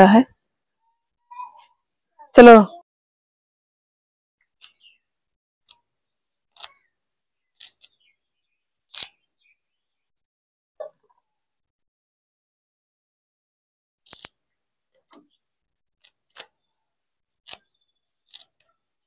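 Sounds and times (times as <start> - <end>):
plant stems snapping: 14.0 - 14.3.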